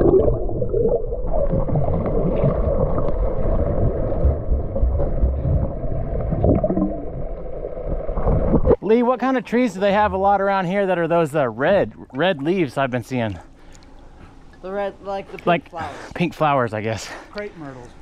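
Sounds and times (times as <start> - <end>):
muffled underwater water rushing: 0.0 - 8.8.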